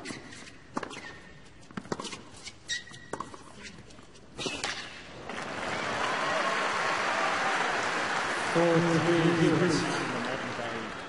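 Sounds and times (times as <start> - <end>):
shoes squeaking: 0.0 - 5.0
racket hitting tennis ball: 4.4 - 5.0
crowd applause: 5.2 - 11.0.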